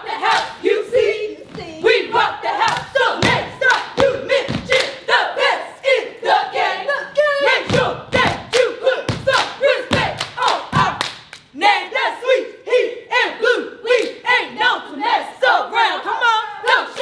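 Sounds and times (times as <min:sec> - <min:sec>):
group chanting in unison: 0:00.0 - 0:17.0
hands clapping: 0:09.3 - 0:11.5.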